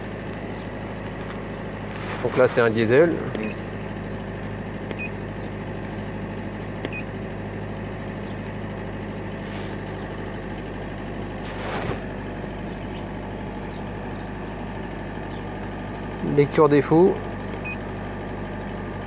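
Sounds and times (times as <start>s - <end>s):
diesel engine idling: 0.0s - 19.0s
brief rustle: 1.9s - 2.5s, 9.4s - 9.9s, 11.4s - 12.1s.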